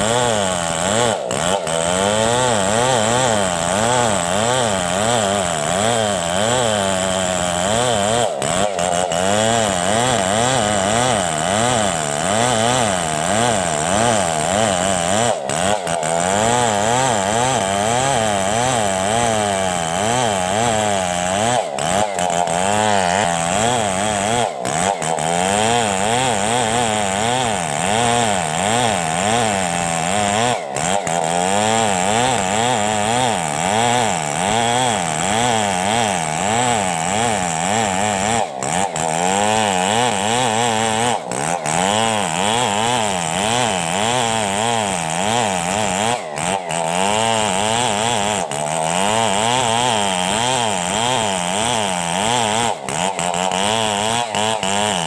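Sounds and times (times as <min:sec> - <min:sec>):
chainsaw cutting through log: 0:00.0 - 0:55.0.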